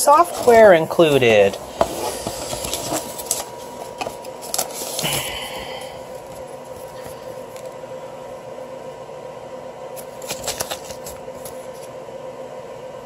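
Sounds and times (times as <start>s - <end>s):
steady background hum: 0.0s - 13.0s
paper leaflet rustling: 0.1s - 7.8s, 10.0s - 12.0s.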